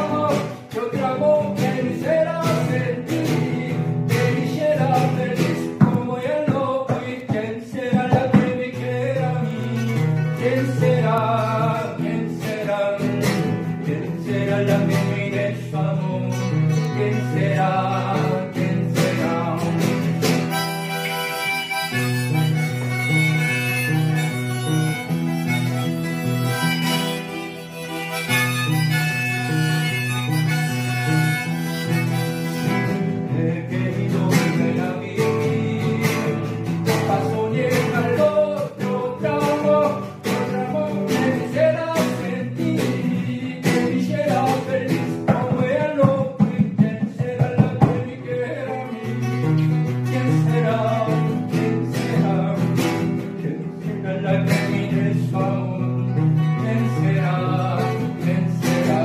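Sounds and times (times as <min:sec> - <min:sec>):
harmonica melody: 0:00.0 - 0:06.2, 0:08.7 - 0:46.4
acoustic guitar strumming: 0:00.0 - 0:59.0
man singing: 0:00.0 - 0:59.0.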